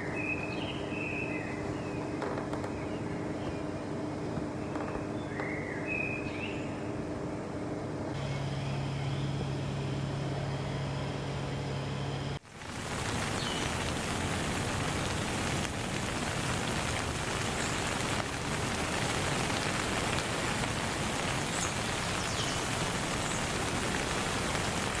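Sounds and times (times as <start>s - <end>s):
steady rain falling: 12.4s - 25.0s.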